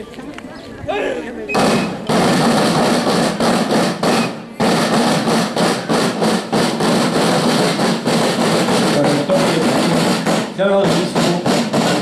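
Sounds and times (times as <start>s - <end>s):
marching drum corps playing: 1.5s - 12.0s.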